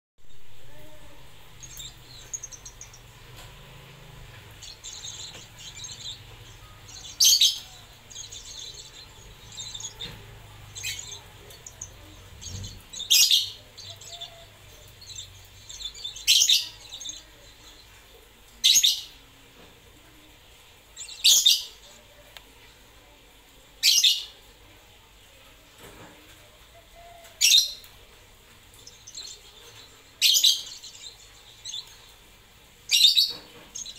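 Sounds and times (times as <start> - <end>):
lovebird high-pitched calls: 4.6 - 17.3.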